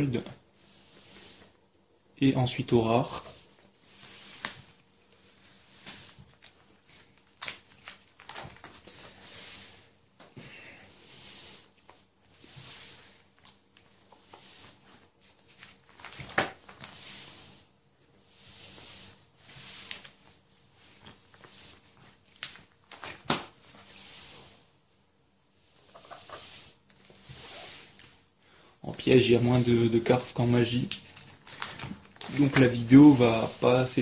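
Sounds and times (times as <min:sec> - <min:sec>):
plastic pages rustling: 0:05.8 - 0:09.2, 0:13.2 - 0:17.0, 0:19.6 - 0:20.3, 0:21.0 - 0:24.0, 0:28.8 - 0:34.0.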